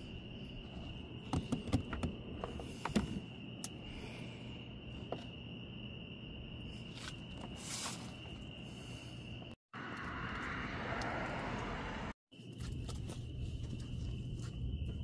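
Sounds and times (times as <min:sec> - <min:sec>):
crickets trilling: 0:00.0 - 0:15.0
rushing noise: 0:09.8 - 0:12.2.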